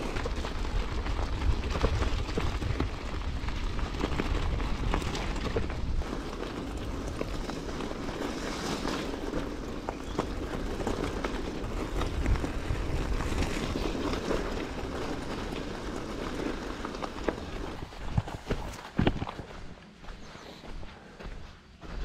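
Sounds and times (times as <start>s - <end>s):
bicycle rolling on path: 0.0s - 22.0s
wind on microphone: 10.6s - 15.3s.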